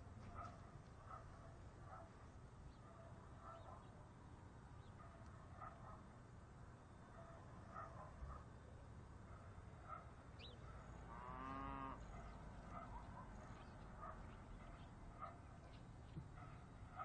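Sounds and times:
cow mooing: 0:11.1 - 0:12.0.

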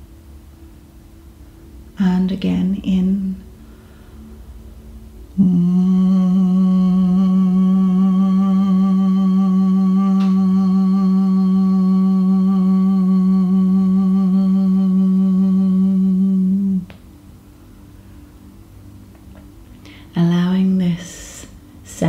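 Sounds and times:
woman humming a long note: 0:05.3 - 0:17.0.

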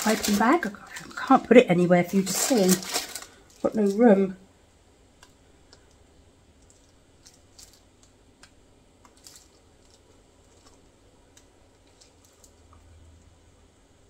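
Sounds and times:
plastic clicks and rustles: 0:02.2 - 0:04.0, 0:06.6 - 0:12.9.

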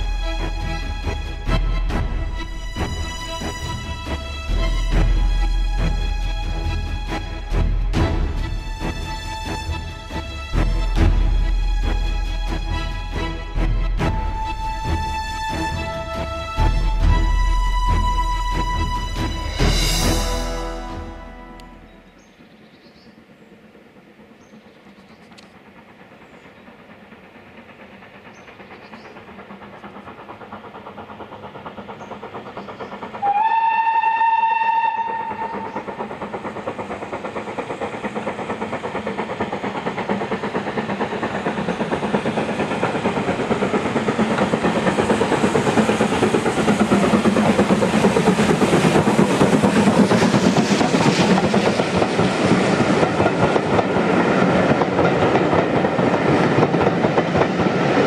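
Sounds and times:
steam train approaching: 0:00.0 - 0:58.0
train wheels clicking over rails: 0:22.0 - 0:58.0
steam whistle blast: 0:33.2 - 0:35.7.

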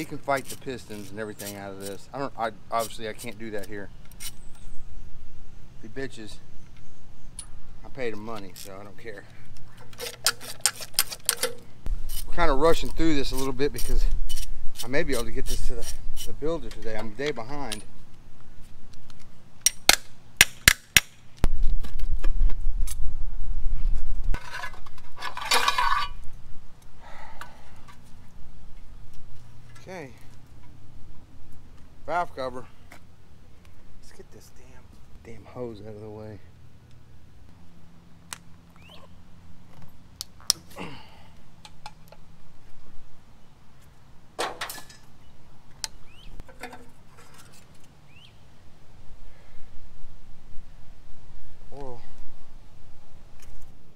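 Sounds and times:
metal hand tools clanking on engine: 0:09.8 - 0:17.9, 0:24.4 - 0:26.2, 0:46.4 - 0:47.6.

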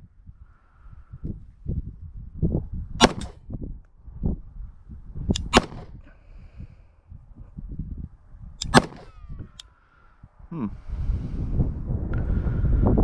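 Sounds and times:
low wind rumble on microphone: 0:00.0 - 0:13.0
pistol shots: 0:03.0 - 0:03.4, 0:05.4 - 0:05.9, 0:08.6 - 0:09.2.

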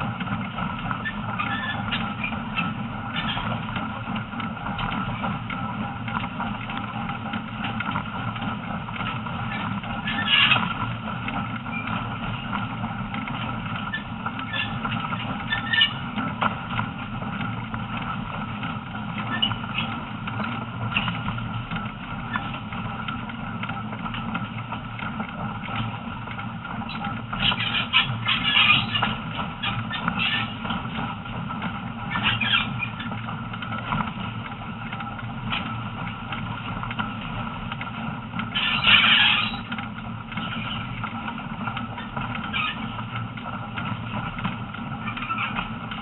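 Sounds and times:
train wheels rumbling on rails: 0:00.0 - 0:46.0
high wheel squeaks: 0:00.9 - 0:04.1, 0:09.4 - 0:10.9, 0:11.6 - 0:12.6, 0:13.8 - 0:16.2, 0:19.2 - 0:21.4, 0:22.3 - 0:22.6, 0:26.8 - 0:31.0, 0:32.0 - 0:33.2, 0:38.5 - 0:41.0, 0:41.9 - 0:43.2, 0:45.0 - 0:45.8.

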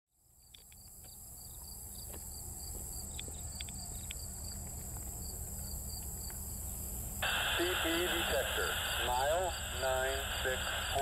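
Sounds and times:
insects chirping: 0:00.2 - 0:11.0
steady low rumble: 0:06.6 - 0:11.0.

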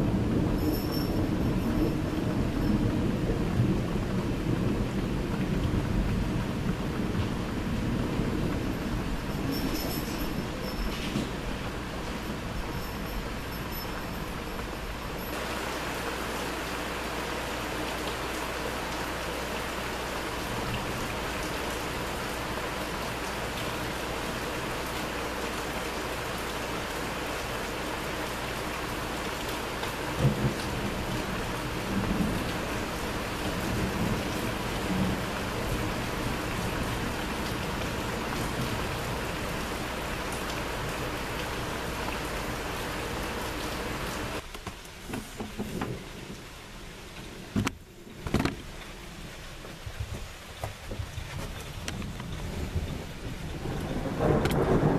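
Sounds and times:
thunder rumble: 0:00.0 - 0:15.3, 0:30.0 - 0:44.4, 0:45.6 - 0:54.9
steady rain falling: 0:00.0 - 0:54.9.

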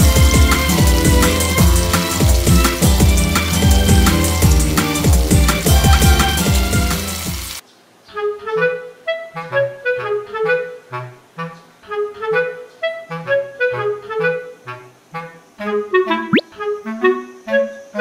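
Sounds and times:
bass line: 0:00.0 - 0:07.0
bouncy background music: 0:00.0 - 0:07.6
woodwind melody: 0:00.0 - 0:07.6, 0:08.2 - 0:18.0.

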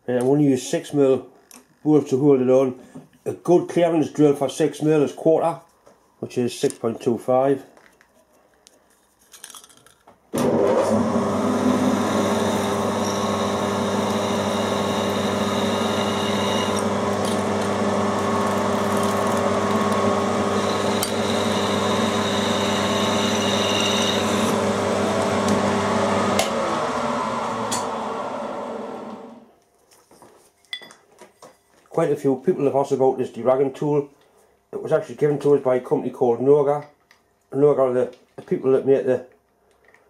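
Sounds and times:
drill boring into metal plate: 0:10.4 - 0:25.7
milling machine motor humming and whining: 0:10.4 - 0:29.4.

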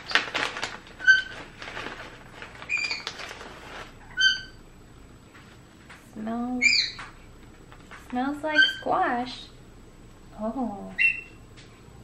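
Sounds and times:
foil bag crinkling: 0:00.0 - 0:04.5
cockatiel chirps: 0:02.7 - 0:03.1, 0:04.0 - 0:04.6, 0:06.6 - 0:07.0, 0:11.0 - 0:11.4.

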